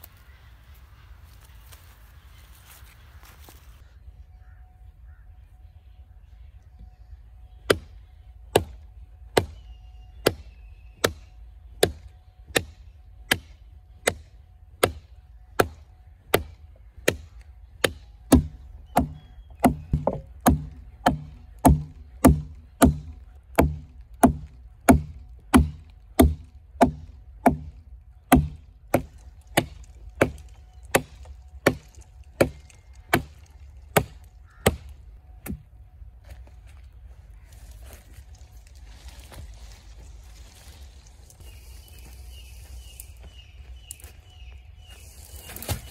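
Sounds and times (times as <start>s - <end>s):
knife chopping into wood: 17.8s - 27.7s.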